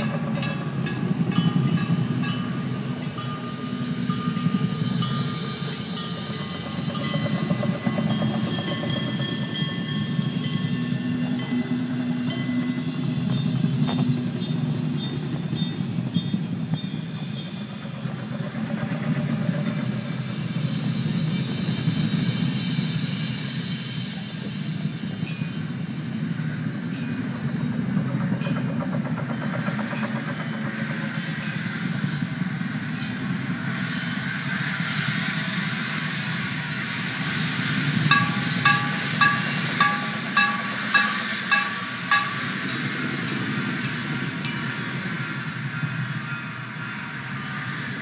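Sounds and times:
percussion ensemble rumbling: 0.0 - 33.7, 36.5 - 48.0
pitched ringing strikes: 37.8 - 47.6.

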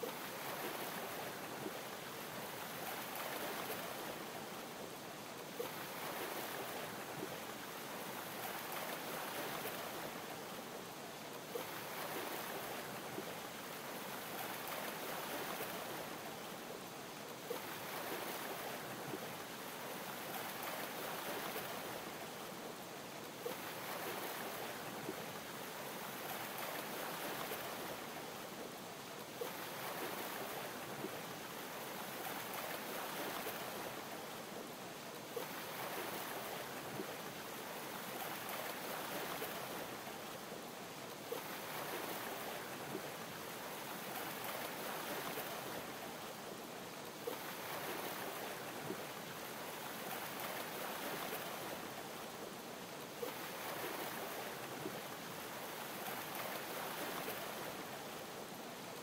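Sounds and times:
ocean waves lapping: 5.6 - 10.4, 11.5 - 16.4, 17.4 - 22.2, 23.3 - 28.2, 29.3 - 34.2, 35.3 - 40.3, 41.2 - 46.3, 47.1 - 52.2, 53.2 - 58.0.

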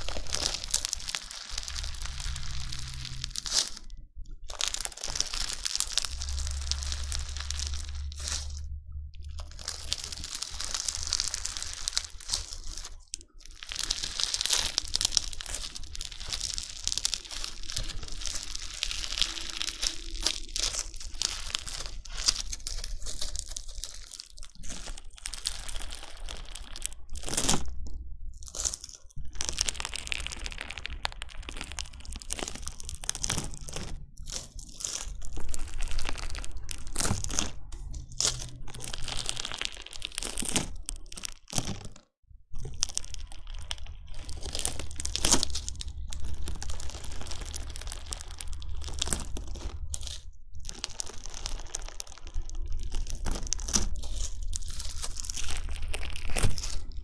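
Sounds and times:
crunchy slime being squished: 0.0 - 57.0.

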